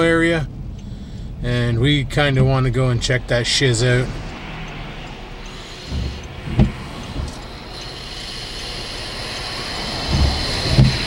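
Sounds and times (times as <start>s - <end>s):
low rumble of tyres: 0.0s - 11.0s
low thumps: 0.5s - 8.6s, 9.9s - 11.0s
wet tyre hiss: 3.5s - 11.0s.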